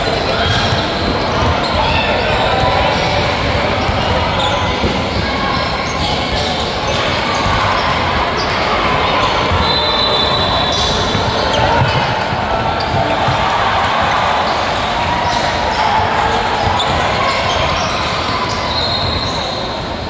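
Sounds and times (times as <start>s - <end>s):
crowd voices: 0.0s - 20.0s
basketball bouncing on court: 10.7s - 19.5s.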